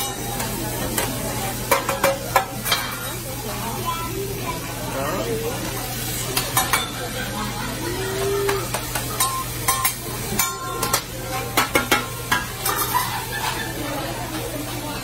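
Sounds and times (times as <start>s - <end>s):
food sizzling on a griddle: 0.0s - 15.0s
metal spatula clacking on steel: 8.7s - 13.6s.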